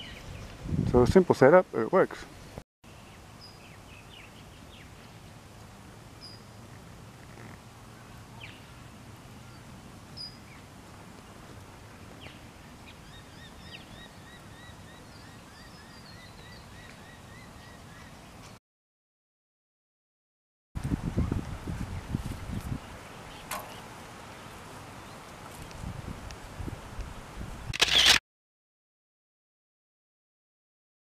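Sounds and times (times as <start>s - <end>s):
bird calls and chirps: 0.0s - 0.5s, 6.2s - 6.5s, 12.2s - 18.3s
faint outdoor ambience: 0.0s - 18.6s, 20.8s - 28.2s.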